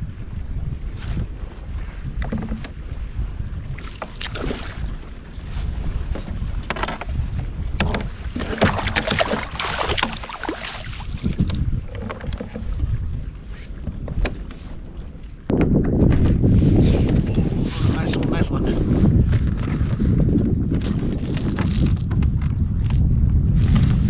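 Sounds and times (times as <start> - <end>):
wind rumbling on microphone: 0.0 - 24.0
fishing gear clicking and knocking: 2.2 - 4.3, 6.6 - 7.1, 7.8 - 10.5, 11.2 - 12.8.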